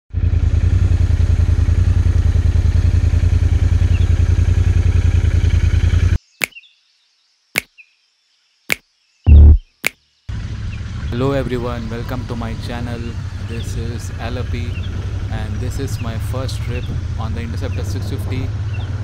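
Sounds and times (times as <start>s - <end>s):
motorcycle engine running: 0.1s - 6.2s, 10.3s - 19.0s
short sharp hits: 8.7s - 10.0s.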